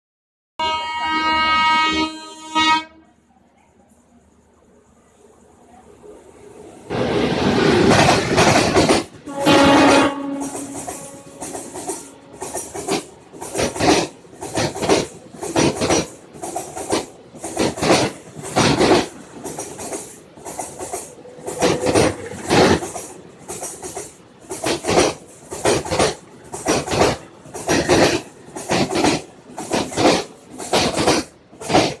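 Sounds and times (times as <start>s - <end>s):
wheel on rail hiss: 3.6s - 32.0s
train wheels clacking over rail joints: 7.0s - 32.0s.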